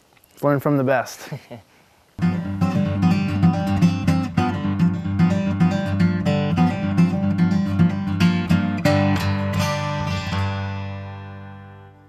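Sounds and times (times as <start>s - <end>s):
acoustic guitar strumming: 2.2s - 12.0s.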